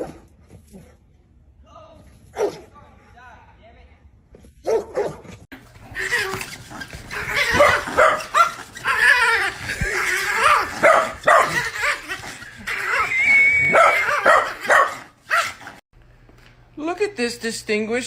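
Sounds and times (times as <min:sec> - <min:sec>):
small dog yipping and barking: 0:05.9 - 0:15.7.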